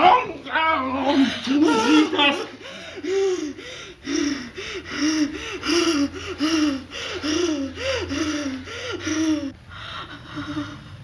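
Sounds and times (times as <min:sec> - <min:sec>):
woman gasping and moaning: 0:02.4 - 0:11.0.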